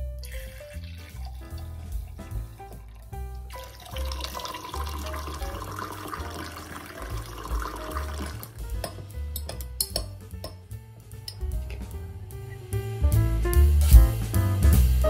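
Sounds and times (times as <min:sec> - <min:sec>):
background music with bass: 0:00.0 - 0:15.0
water pouring into glass: 0:00.2 - 0:08.6.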